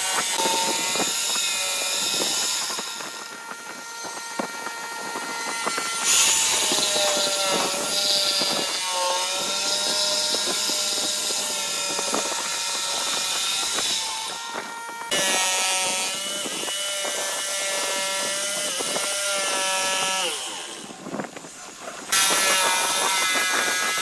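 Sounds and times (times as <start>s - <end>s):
jigsaw cutting wood: 0.0s - 24.0s.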